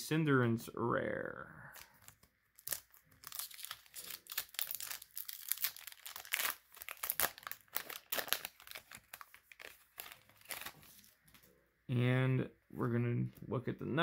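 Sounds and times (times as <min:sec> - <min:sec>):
foil wrapper crinkling and tearing: 0:01.8 - 0:11.4.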